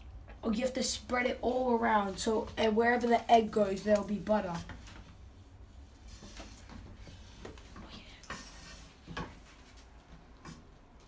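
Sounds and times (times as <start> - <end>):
spatula scraping a frying pan: 8.2 - 9.4.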